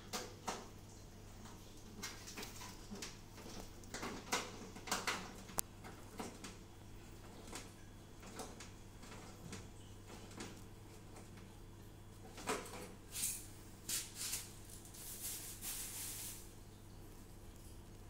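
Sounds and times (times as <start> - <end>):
short scraping rustling noises: 13.1 - 16.5.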